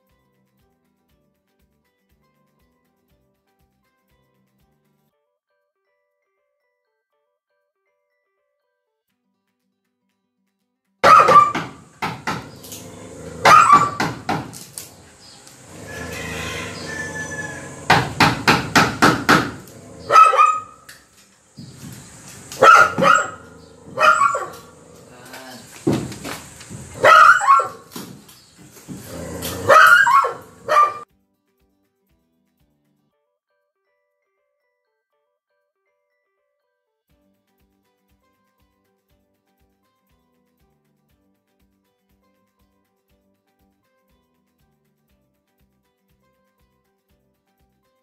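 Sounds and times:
dog barking: 11.0 - 21.0, 21.6 - 31.0.

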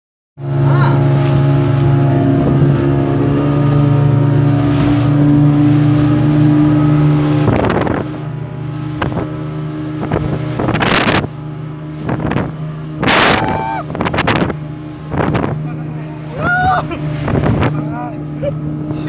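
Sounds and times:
speedboat motor humming: 0.4 - 19.0
water rushing along hull: 0.4 - 19.0.

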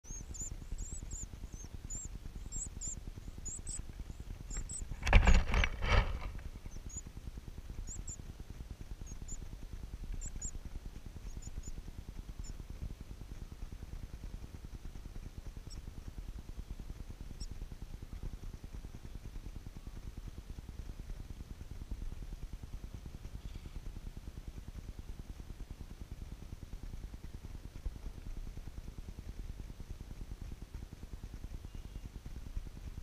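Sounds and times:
nestlings cheeping: 0.1 - 7.1.

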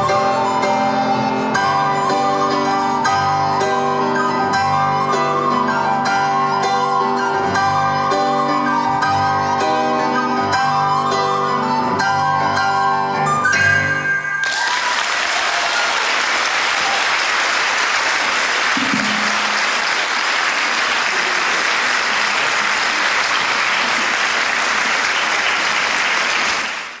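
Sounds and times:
audience applauding: 14.4 - 27.0.

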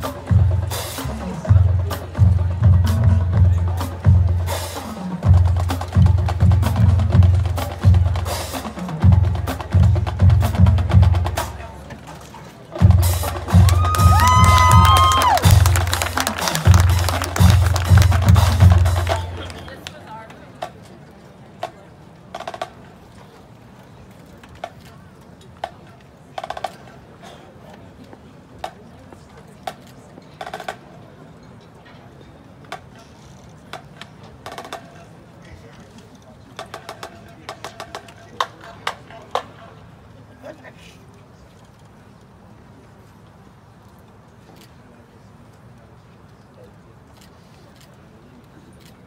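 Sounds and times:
crowd murmur: 0.0 - 49.0.

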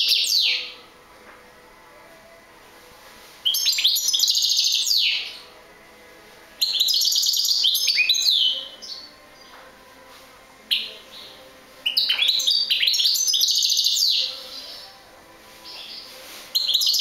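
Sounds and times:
goldfinch twittering song: 3.5 - 5.4, 6.6 - 9.5, 11.9 - 14.8.

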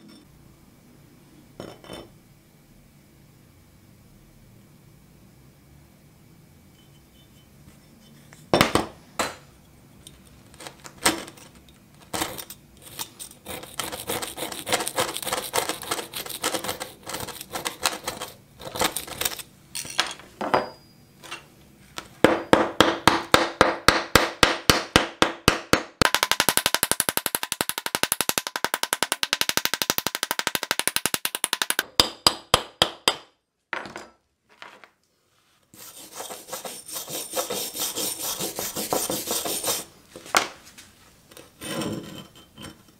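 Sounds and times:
wire brush scrubbing rust: 12.8 - 18.2, 35.8 - 39.9
axe head scraping metal surface: 35.8 - 39.9, 41.4 - 42.9.

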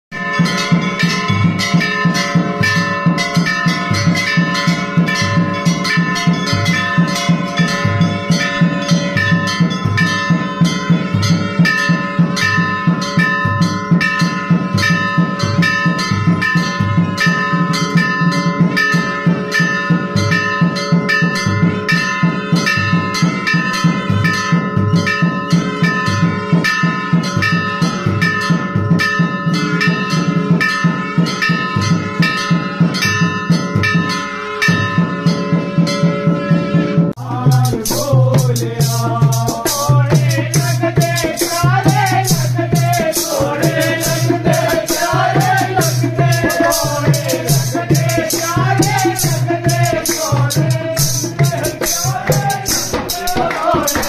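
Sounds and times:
temple bells ringing: 0.1 - 54.0
steady low beat: 37.2 - 54.0.

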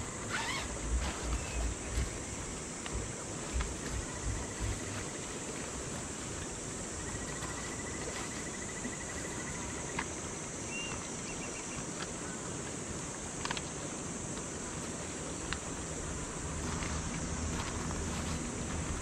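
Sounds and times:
insect trilling: 0.0 - 10.0
insect chirps: 0.0 - 19.0
insect chorus: 0.0 - 19.0.

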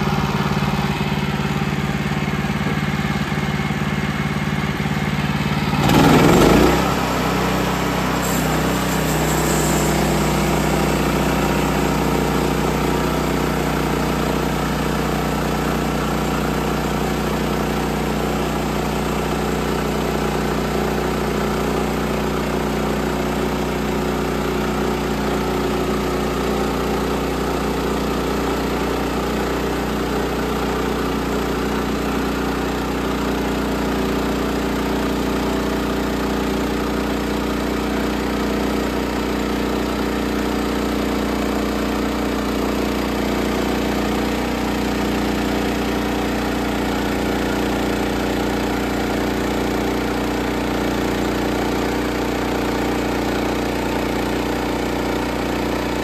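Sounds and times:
sawmill engine running: 0.0 - 56.0.

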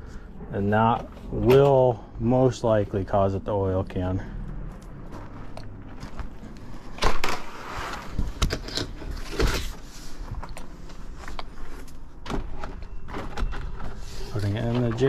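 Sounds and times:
plastic siding rattling and scraping: 5.9 - 15.0.

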